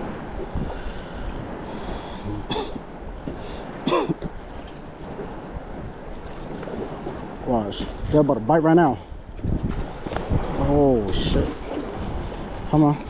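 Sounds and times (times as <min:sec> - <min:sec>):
wind noise on microphone: 0:00.0 - 0:13.0
person clearing throat: 0:02.3 - 0:02.8, 0:03.9 - 0:04.3.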